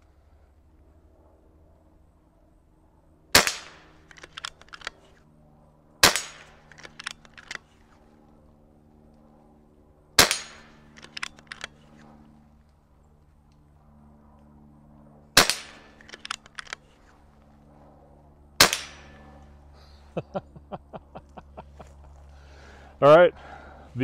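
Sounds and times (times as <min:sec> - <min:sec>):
air rifle shot crack: 0:03.3 - 0:04.4, 0:06.0 - 0:07.1, 0:10.2 - 0:11.2, 0:15.4 - 0:16.4, 0:18.6 - 0:19.3
quick run of light clicks: 0:04.0 - 0:05.2, 0:06.7 - 0:08.0, 0:10.9 - 0:12.8, 0:15.9 - 0:17.1.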